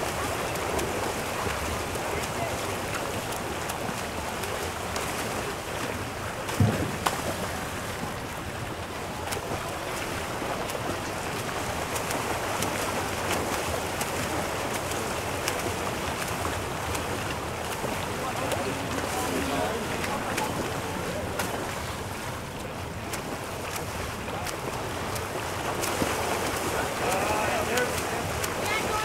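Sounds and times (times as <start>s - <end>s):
swimmers splashing in pool water: 0.0s - 29.0s
brief thump: 6.5s - 7.5s.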